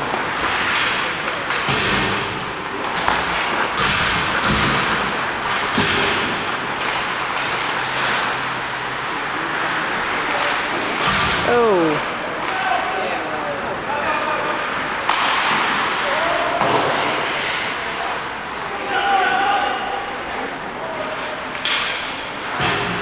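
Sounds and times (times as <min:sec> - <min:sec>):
skate blades scraping ice: 0:00.0 - 0:11.1, 0:14.0 - 0:18.6
hockey sticks and puck clacking: 0:00.0 - 0:11.4, 0:12.3 - 0:13.4, 0:14.0 - 0:19.2, 0:20.5 - 0:23.0.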